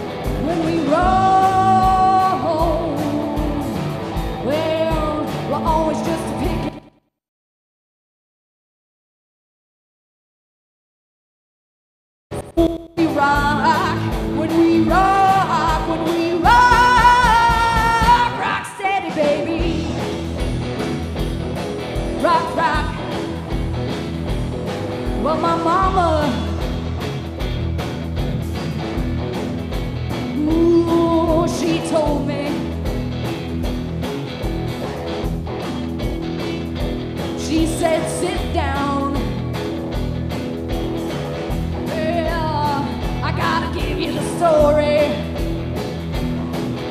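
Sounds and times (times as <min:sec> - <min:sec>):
drums: 0:00.0 - 0:07.0, 0:12.3 - 0:46.9
electric guitars: 0:00.0 - 0:07.0, 0:12.3 - 0:46.9
woman singing: 0:00.3 - 0:06.9, 0:12.6 - 0:20.0, 0:22.2 - 0:23.2, 0:25.2 - 0:26.7, 0:30.3 - 0:32.8, 0:37.4 - 0:39.4, 0:41.8 - 0:45.4.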